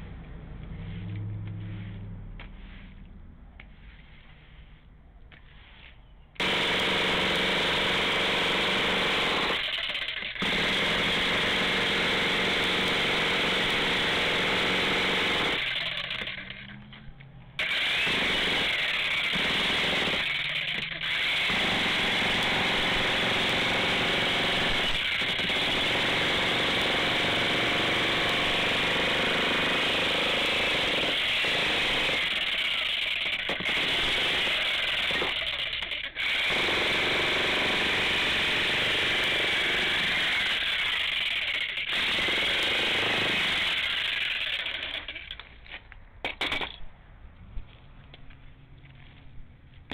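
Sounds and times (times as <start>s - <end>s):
jackhammer breaking concrete: 6.4s - 16.8s, 17.6s - 45.5s.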